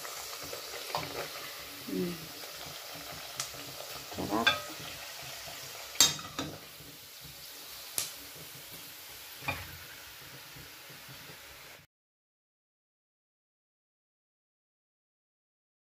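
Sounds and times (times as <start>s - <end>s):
meat deep-frying in oil: 0.0s - 11.9s
metal tongs clinking: 4.3s - 4.8s.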